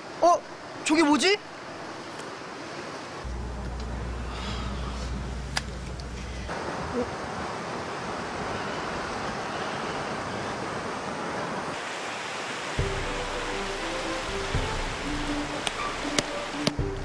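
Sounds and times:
steady rushing noise: 0:06.5 - 0:17.0
soft music notes: 0:12.8 - 0:17.0.

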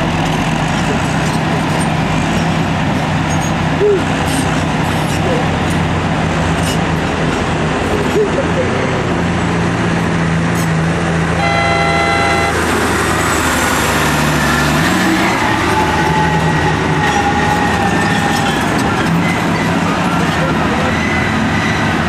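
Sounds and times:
dump truck driving past: 0:00.0 - 0:22.0
heavy diesel engines running: 0:00.0 - 0:22.0
horn sounding: 0:11.4 - 0:13.0.

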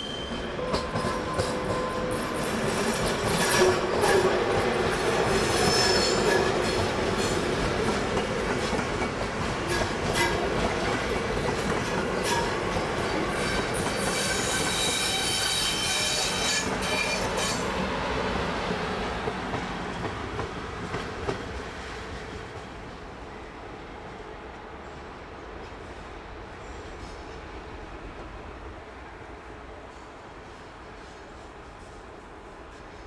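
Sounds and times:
train wheels clicking over rail joints: 0:00.6 - 0:17.7
high wheel squeal: 0:13.4 - 0:17.7.

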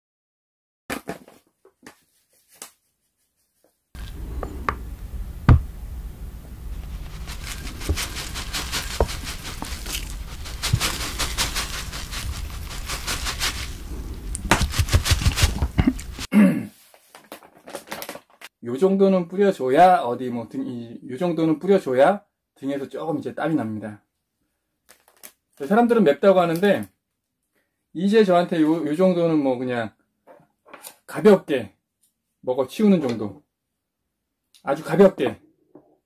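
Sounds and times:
pepper flakes pattering from bag: 0:06.7 - 0:16.3.

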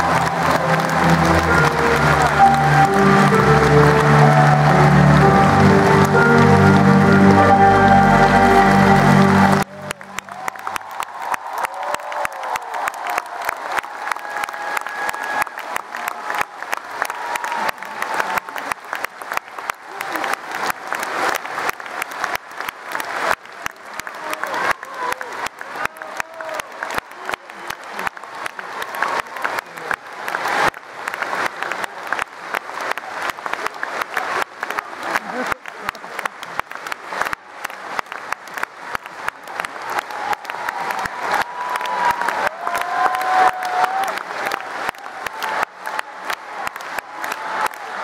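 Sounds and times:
steady high tone: 0:00.0 - 0:10.2
audience applauding: 0:00.0 - 0:48.0.

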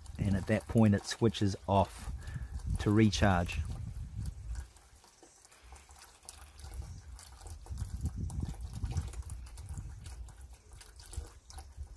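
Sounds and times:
water drips: 0:00.0 - 0:11.9
water trickling and splashing: 0:00.0 - 0:11.9.

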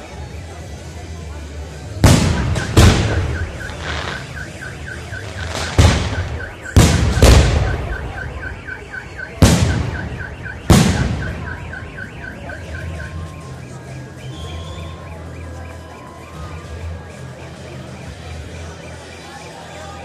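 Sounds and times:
fireworks bursting with booms: 0:02.0 - 0:08.6, 0:09.3 - 0:12.2.

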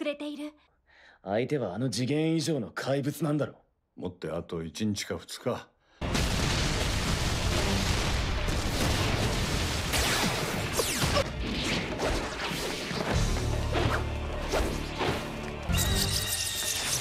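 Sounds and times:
dramatic background music: 0:06.0 - 0:17.0.

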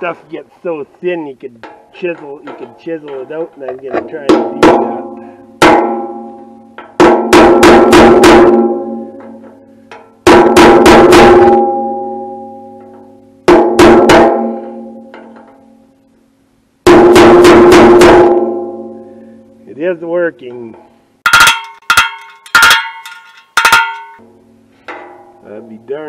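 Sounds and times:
hammer striking metal chisel: 0:21.3 - 0:24.2.

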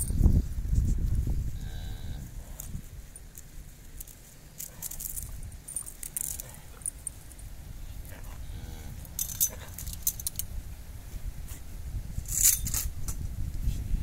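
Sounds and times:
light clicks and jingles: 0:02.6 - 0:08.2, 0:09.0 - 0:10.5.

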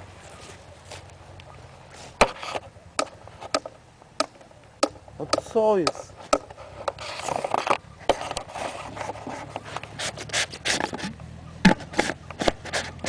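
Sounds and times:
scrapes and rubs on plastic pipe: 0:02.0 - 0:02.7, 0:06.5 - 0:13.0.

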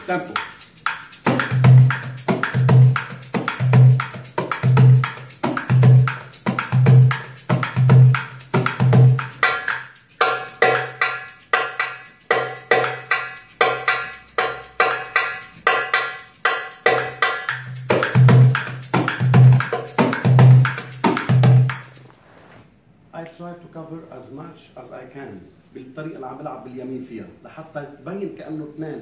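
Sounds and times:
goblet drum groove: 0:00.0 - 0:22.1
egg shaker hiss: 0:00.0 - 0:22.2.

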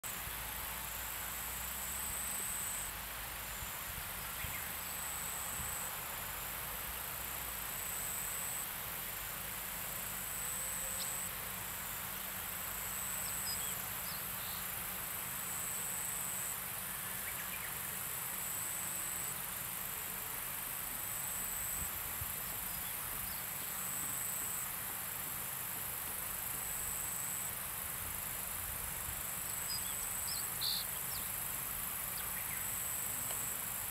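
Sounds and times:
insect hiss: 0:00.0 - 0:33.9
insect buzzing trill: 0:28.2 - 0:33.8.

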